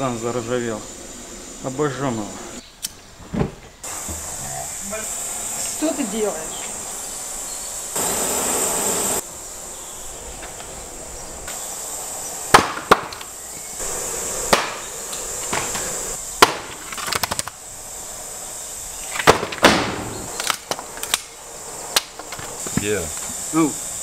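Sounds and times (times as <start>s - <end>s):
faint hiss: 0.0s - 24.0s
sharp knocks and cracks: 12.5s - 13.3s, 14.5s - 14.8s, 15.5s - 17.6s, 19.1s - 21.3s.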